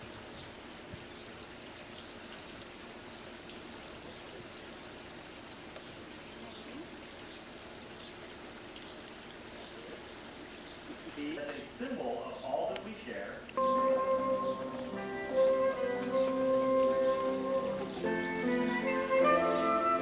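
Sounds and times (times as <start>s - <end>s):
faint outdoor background hiss: 0.0s - 20.0s.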